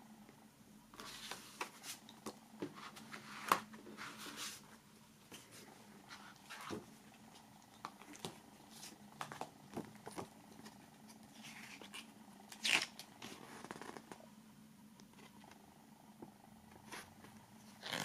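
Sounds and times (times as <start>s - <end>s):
steady low hum: 0.0s - 18.0s
cardboard and paper rustling: 1.0s - 12.1s.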